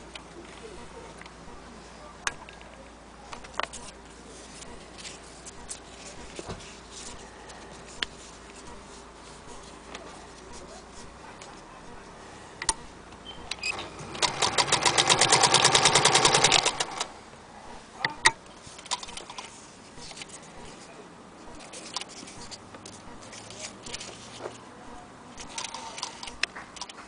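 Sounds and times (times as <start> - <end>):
electric sewing machine running: 13.8 - 17.1.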